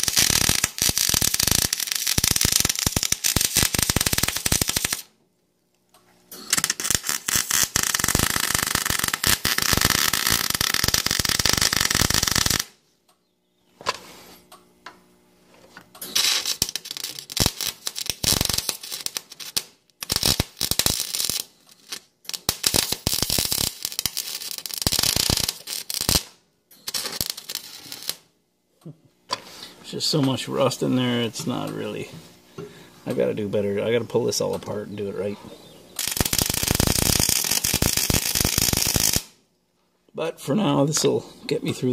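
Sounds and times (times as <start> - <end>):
welder arc crackling: 0.0 - 5.1, 6.3 - 12.8, 15.8 - 28.3, 33.1 - 39.4.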